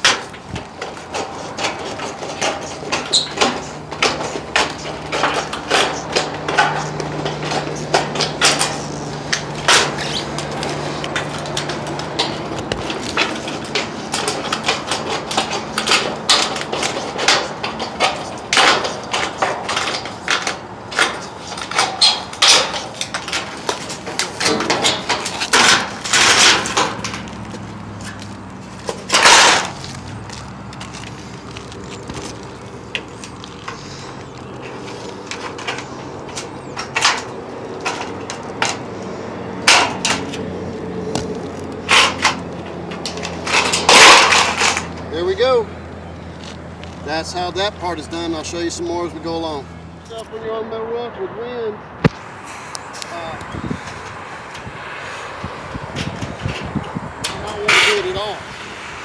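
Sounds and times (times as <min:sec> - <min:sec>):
sheet metal rattling: 0:00.0 - 0:38.9, 0:41.8 - 0:45.6.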